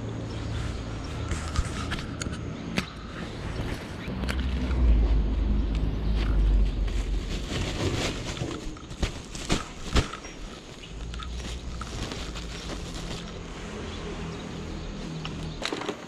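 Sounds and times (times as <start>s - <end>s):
plastic sack rustling: 6.0s - 13.6s.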